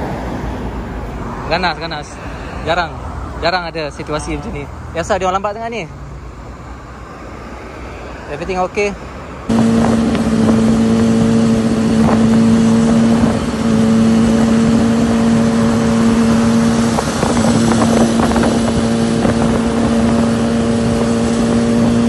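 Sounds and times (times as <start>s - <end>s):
motorcycle engine running: 9.5s - 22.0s
wind rushing past microphone: 9.5s - 22.0s.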